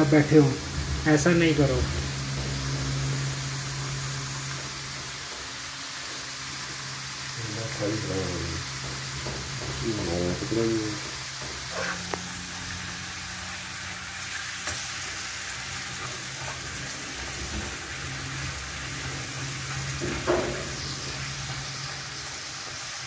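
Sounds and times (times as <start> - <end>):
low steady hum: 0.0 - 14.3
chips sizzling in hot oil: 0.0 - 23.0
skimmer knocking against pan: 8.6 - 12.3.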